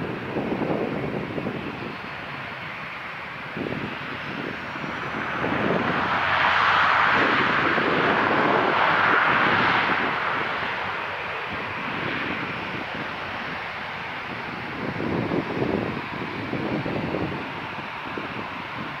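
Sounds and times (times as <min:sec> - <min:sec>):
airliner engine noise: 0:00.0 - 0:19.0.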